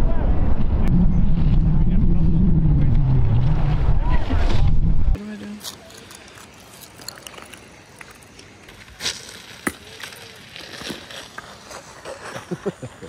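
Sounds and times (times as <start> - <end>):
ice cracking and snapping: 5.6 - 12.5.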